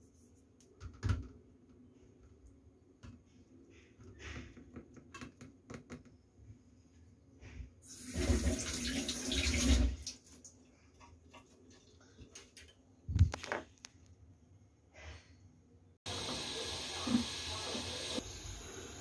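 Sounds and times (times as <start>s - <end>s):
water running from tap: 7.9s - 10.4s, 16.1s - 19.0s.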